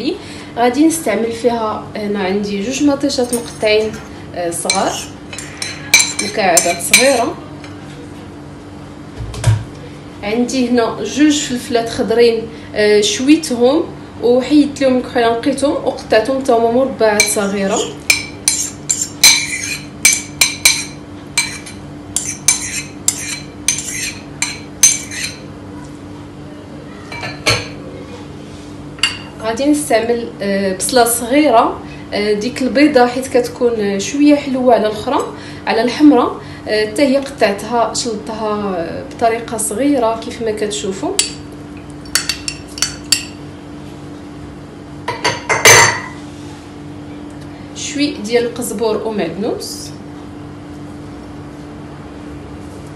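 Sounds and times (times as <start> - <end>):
dishes clattering: 4.7 - 7.3, 17.2 - 25.4, 27.1 - 27.8, 45.1 - 46.2
metal spoon clinking on bowl: 4.7 - 7.3, 17.2 - 25.4, 42.1 - 43.4.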